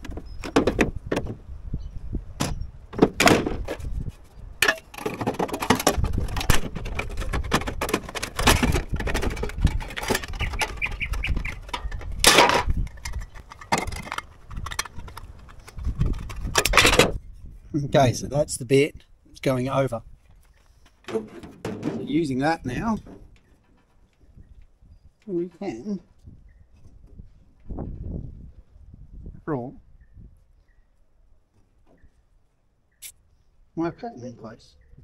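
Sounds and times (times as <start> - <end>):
metal pieces clacking: 4.6 - 17.0.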